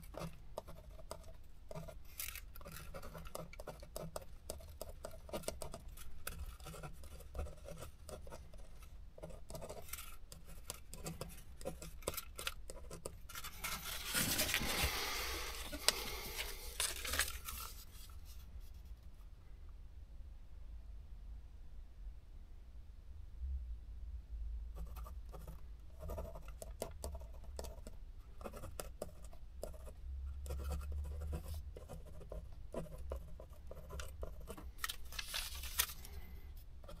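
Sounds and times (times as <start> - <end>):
ballpoint pen scratching on paper: 0.0 - 14.9, 24.8 - 34.8, 36.8 - 37.0
paper rustling: 2.0 - 3.4, 13.2 - 18.7, 34.7 - 36.3.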